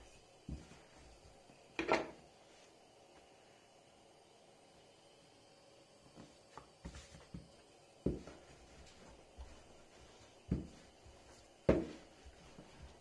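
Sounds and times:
rolling pin knocking on countertop: 11.7s - 12.0s.

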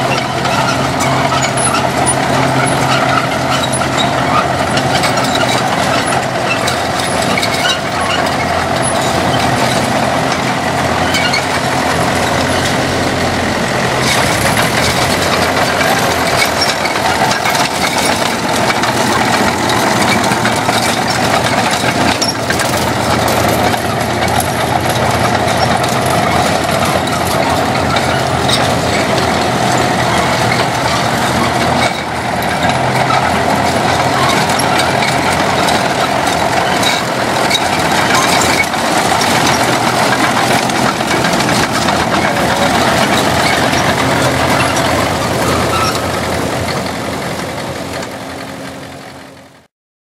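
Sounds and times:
diesel tractor engine running: 0.0s - 49.7s.

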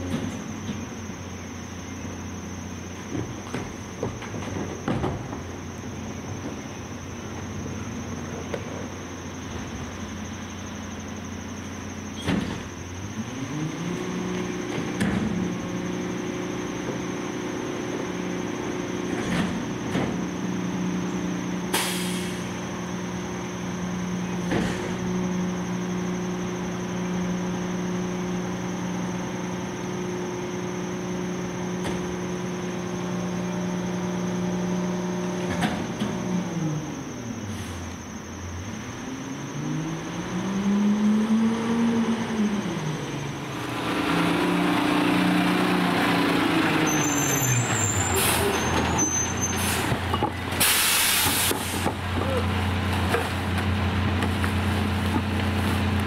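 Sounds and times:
knocks and clunks from hopper: 0.0s - 1.0s, 3.0s - 5.6s, 12.2s - 12.8s, 14.6s - 15.6s, 19.0s - 20.4s, 24.4s - 25.1s, 48.6s - 56.0s
garbage truck engine: 0.0s - 56.0s
hydraulic hiss: 21.7s - 22.6s, 49.4s - 52.0s.

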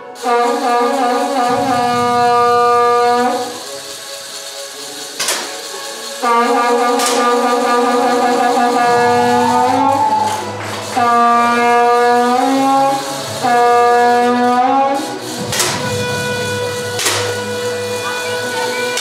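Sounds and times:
music of long held notes: 0.0s - 19.0s
air pistol shots: 5.2s - 5.7s, 6.9s - 7.8s, 13.4s - 17.8s.

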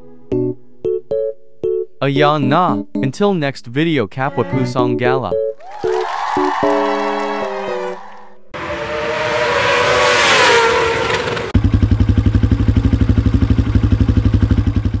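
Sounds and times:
motorcycle engine revving: 8.6s - 15.0s
motorcycle engine idling: 11.6s - 15.0s.

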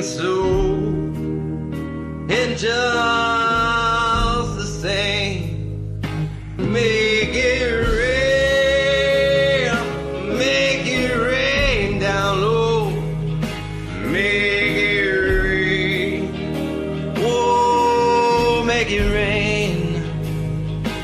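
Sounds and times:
band backing: 0.0s - 21.0s
person singing long notes: 6.6s - 13.1s, 13.9s - 20.2s.

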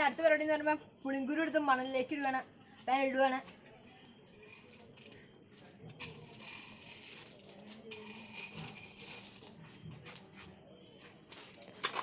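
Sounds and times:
night insects trilling: 0.0s - 12.0s
sand scraping in a pan: 6.0s - 9.8s.

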